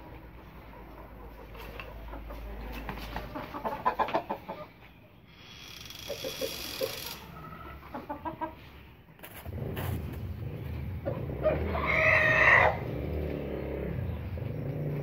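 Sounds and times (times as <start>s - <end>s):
chickens clucking: 0.0s - 15.0s
chicken drawn-out call: 3.3s - 8.7s, 11.0s - 13.2s
low rumble: 9.4s - 14.8s.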